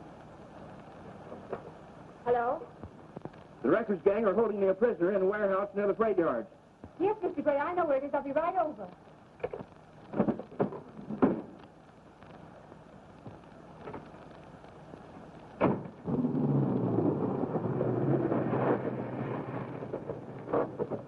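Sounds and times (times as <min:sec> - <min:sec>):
knocks: 0:09.4 - 0:11.6.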